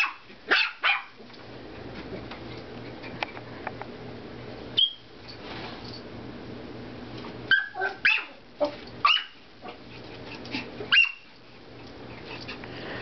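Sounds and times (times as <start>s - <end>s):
puppy yipping and barking: 0.0s - 1.2s, 7.5s - 8.4s, 9.0s - 9.4s, 10.9s - 11.3s.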